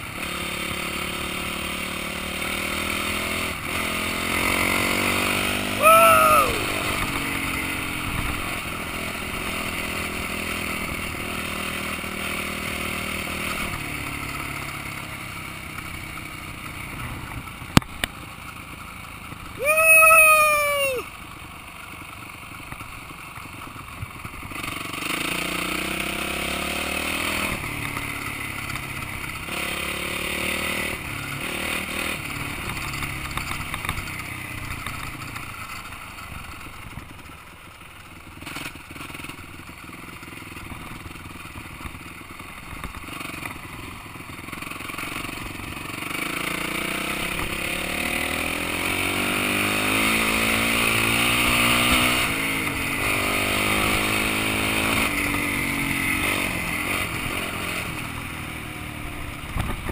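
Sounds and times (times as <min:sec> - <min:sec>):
motorcycle engine revving: 0:00.0 - 0:59.9
loud rising and falling tone: 0:19.6 - 0:21.0.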